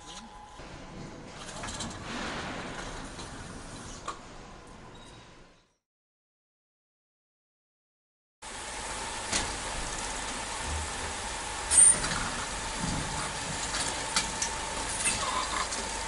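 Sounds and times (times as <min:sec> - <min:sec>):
conveyor humming: 0:08.4 - 0:16.0.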